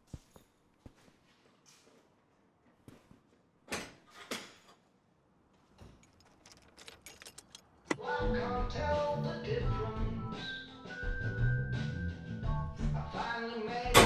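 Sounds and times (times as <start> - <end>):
keys jingling: 5.8 - 8.0.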